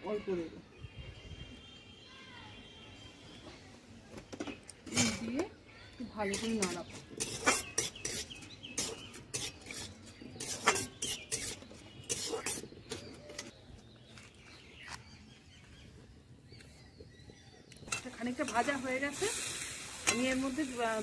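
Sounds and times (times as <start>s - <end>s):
metal spatula scraping a wok: 6.3s - 13.4s.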